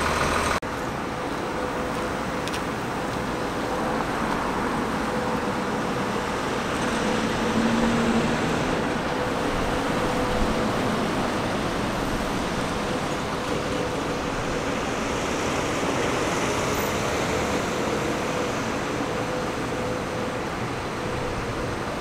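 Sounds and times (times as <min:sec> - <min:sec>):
construction machinery running: 0:00.0 - 0:22.0.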